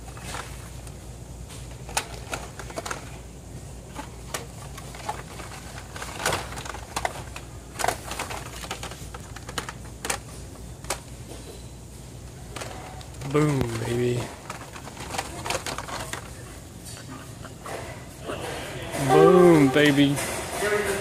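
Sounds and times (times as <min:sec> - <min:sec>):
plastic packs clicking together: 0:01.6 - 0:03.2, 0:03.8 - 0:11.4, 0:12.4 - 0:16.7.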